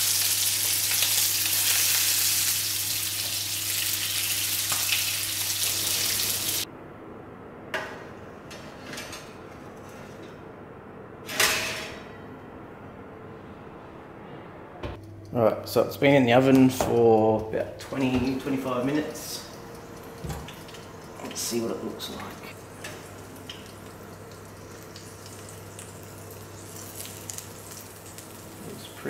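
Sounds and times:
meat sizzling in hot oil: 0:00.0 - 0:06.6, 0:22.7 - 0:28.6
metal tray clattering on rack: 0:11.3 - 0:12.1.

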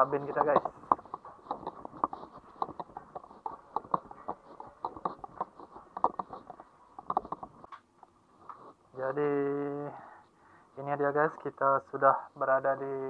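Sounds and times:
footsteps walking: 0:00.0 - 0:07.8.

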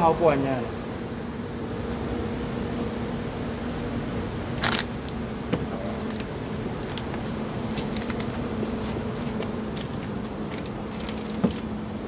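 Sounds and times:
low hum in van cabin: 0:00.0 - 0:12.0.

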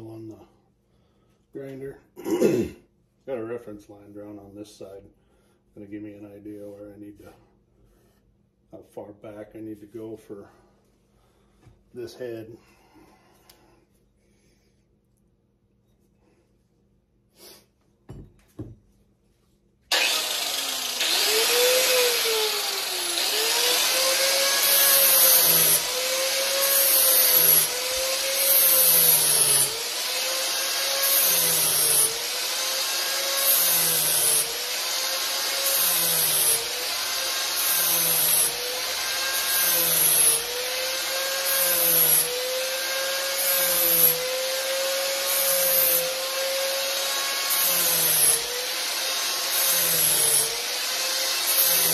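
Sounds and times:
angle grinder sanding wood: 0:19.9 - 0:51.9.

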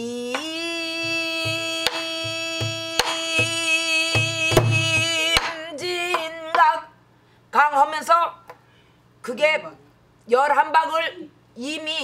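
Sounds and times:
woman singing: 0:00.0 - 0:07.0
drum head thumps: 0:00.3 - 0:05.6.

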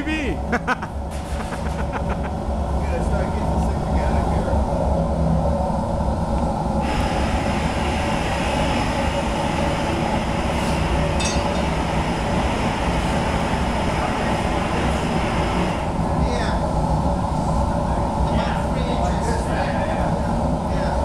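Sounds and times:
gas furnaces roaring: 0:00.0 - 0:21.0
burner hiss: 0:05.9 - 0:16.7.

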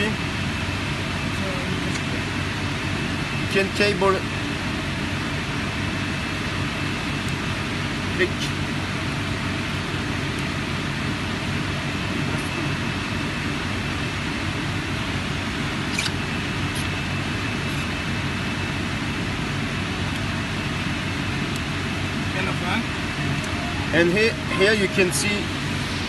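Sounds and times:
steady mechanical hum: 0:00.0 - 0:26.0
faint high whine: 0:20.5 - 0:26.0.

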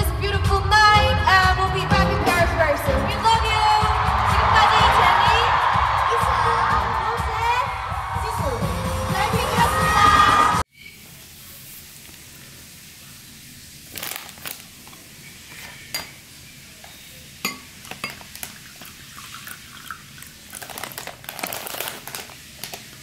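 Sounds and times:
hissing rustling noise: 0:11.0 - 0:16.7
dishes and cutlery clinking: 0:17.4 - 0:18.4.

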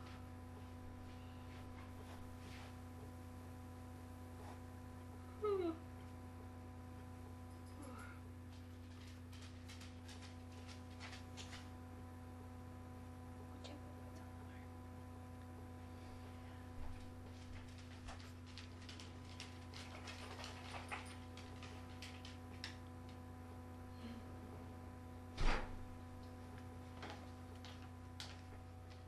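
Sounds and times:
low electrical hum: 0:00.0 - 0:29.0
rats clicking and scratching: 0:07.5 - 0:11.8, 0:17.2 - 0:23.2.

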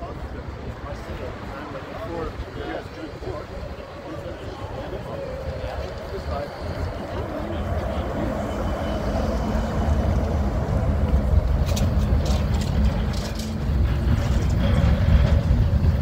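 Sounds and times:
trolleybus passing: 0:00.0 - 0:16.0.

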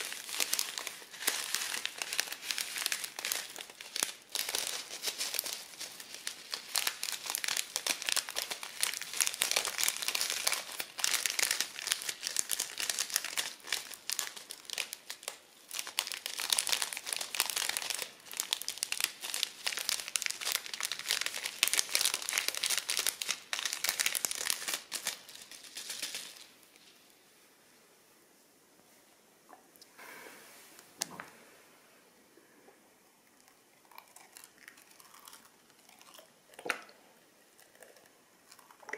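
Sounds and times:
crunchy slime crackling: 0:00.0 - 0:26.5, 0:33.8 - 0:36.8.

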